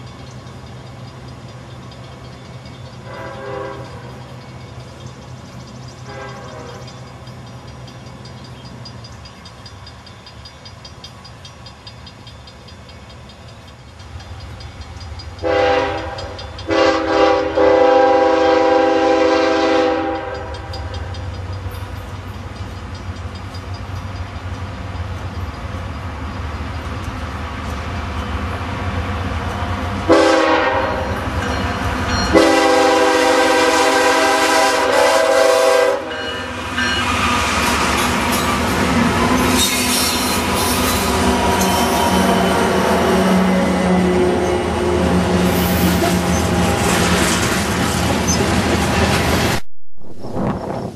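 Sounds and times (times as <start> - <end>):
freight train rumble: 0.0 - 50.9
locomotive air horn blasts: 3.1 - 4.1, 6.0 - 6.9, 15.4 - 20.5, 30.1 - 31.2, 32.3 - 36.5.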